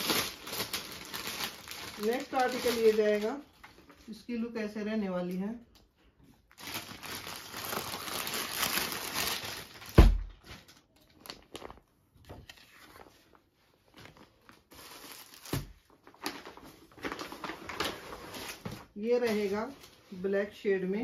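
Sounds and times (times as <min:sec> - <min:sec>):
plastic packaging crinkling: 0:00.0 - 0:04.0, 0:06.5 - 0:20.2.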